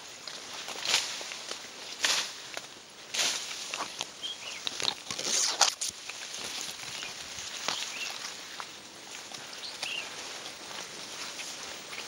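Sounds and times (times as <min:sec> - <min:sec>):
footsteps: 0:00.0 - 0:12.0
grass and leaves swishing: 0:00.0 - 0:12.0.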